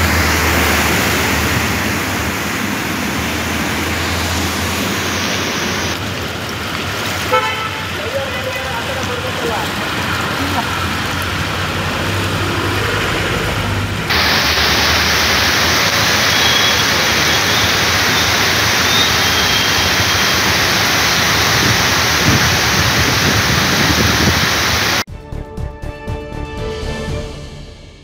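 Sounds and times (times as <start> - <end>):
heavy rain on road: 0.0 - 25.1
traffic: 0.0 - 25.1.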